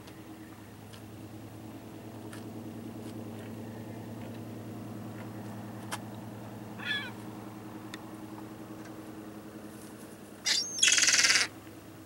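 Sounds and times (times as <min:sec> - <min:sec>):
steady low hum: 0:00.0 - 0:12.0
gulls calling: 0:06.8 - 0:07.2, 0:10.4 - 0:11.6.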